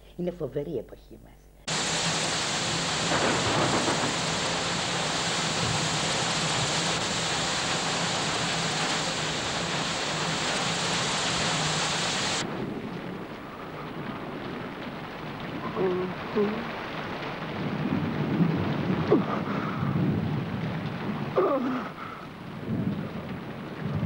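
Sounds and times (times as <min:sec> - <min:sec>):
steady rushing noise: 0:01.7 - 0:12.6.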